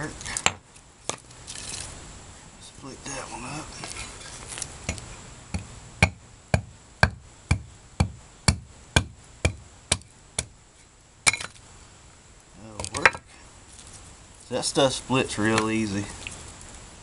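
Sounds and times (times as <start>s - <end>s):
hatchet knocking into wood: 5.6s - 10.5s.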